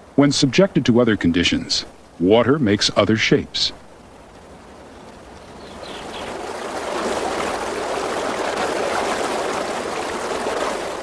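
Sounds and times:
river rushing over rapids: 2.9s - 11.0s.

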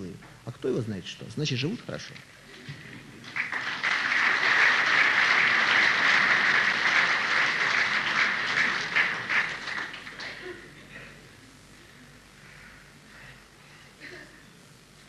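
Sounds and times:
audience applauding: 3.2s - 10.7s.

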